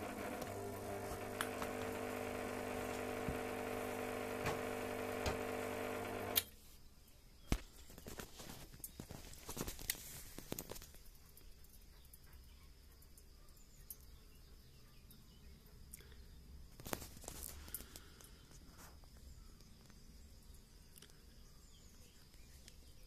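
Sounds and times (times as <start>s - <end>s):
welder humming: 0.0s - 6.5s.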